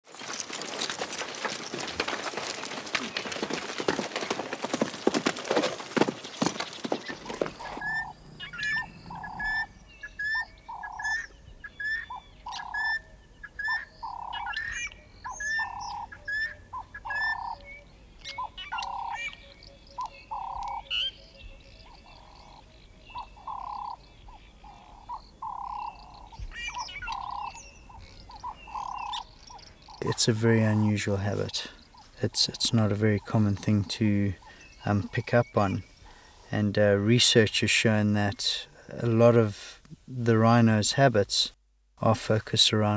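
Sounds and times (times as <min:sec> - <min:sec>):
hooves galloping through dry grass: 0:00.0 - 0:40.6
wild animal calls: 0:07.1 - 0:11.3, 0:22.0 - 0:33.7.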